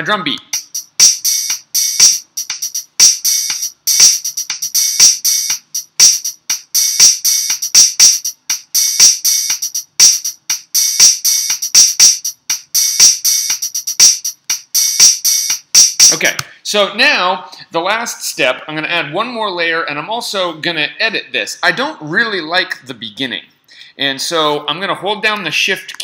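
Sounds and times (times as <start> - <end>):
programmed drum beat: 0.0 - 16.4.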